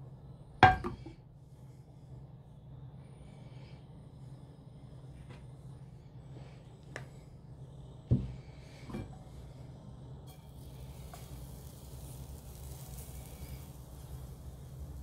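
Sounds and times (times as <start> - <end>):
batter sizzling in pan: 10.3 - 15.0.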